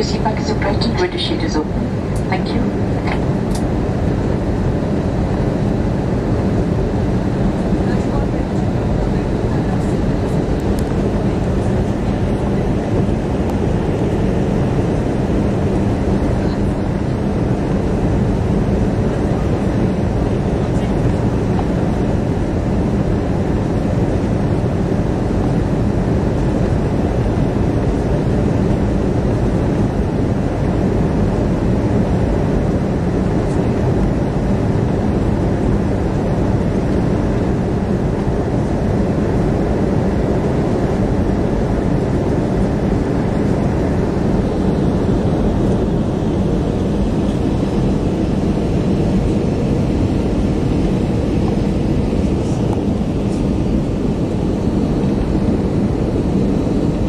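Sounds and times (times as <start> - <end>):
airliner cabin engine rumble: 0.0 - 57.0.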